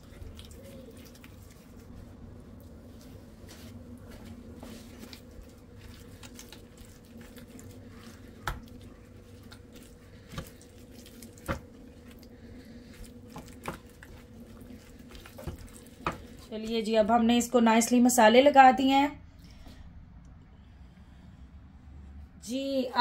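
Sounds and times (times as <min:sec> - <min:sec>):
wet squishing of meat by hand: 0:00.0 - 0:16.8
low hum: 0:19.0 - 0:23.0.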